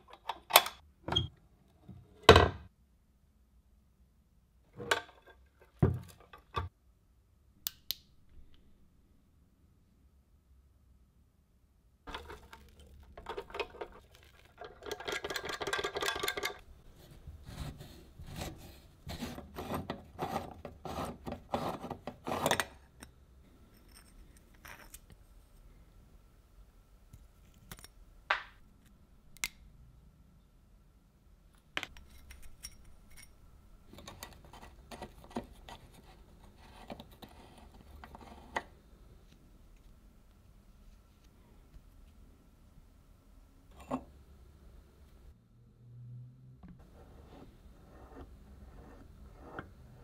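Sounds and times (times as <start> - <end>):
grit rattling and scraping: 12.1 - 16.7.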